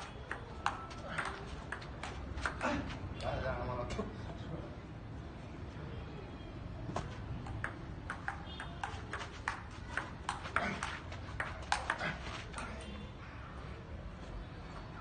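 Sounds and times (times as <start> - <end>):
table tennis ball rally: 0.0 - 3.0, 6.9 - 12.8.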